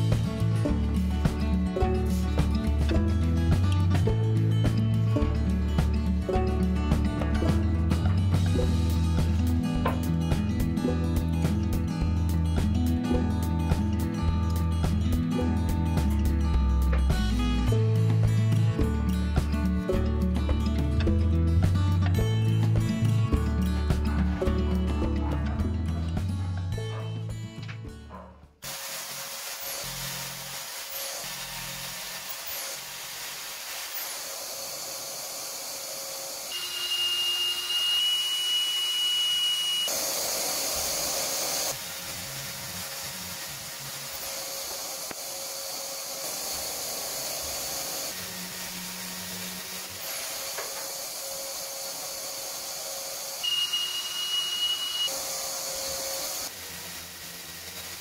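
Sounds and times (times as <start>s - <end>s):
jigsaw cutting: 28.6s - 58.0s
shop vacuum hissing: 28.6s - 58.0s
high steady whine: 36.4s - 51.2s, 52.0s - 56.5s.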